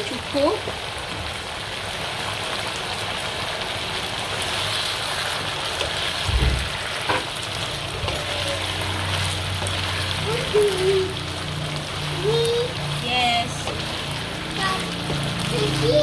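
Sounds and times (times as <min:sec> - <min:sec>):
thick sauce bubbling and sizzling: 0:00.0 - 0:16.0
wooden spatula stirring: 0:04.1 - 0:16.0.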